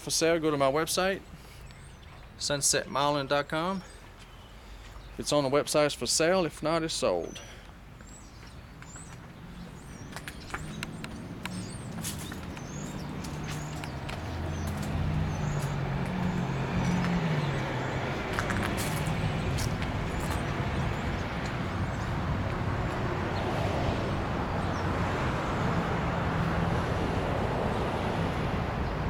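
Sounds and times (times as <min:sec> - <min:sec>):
small birds chirping: 0:00.6 - 0:05.9, 0:07.0 - 0:26.2
vehicle engine humming: 0:07.8 - 0:29.0
outdoor rushing noise: 0:09.7 - 0:29.0.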